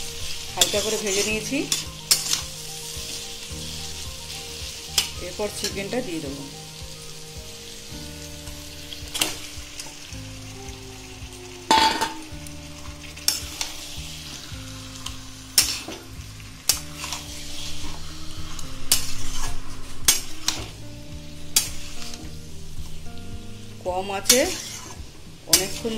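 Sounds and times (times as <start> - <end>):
metal spatula scraping a pan: 0.0 - 5.9, 13.1 - 20.9, 21.5 - 22.3, 24.2 - 25.9
chicken sizzling in hot oil: 0.0 - 25.9.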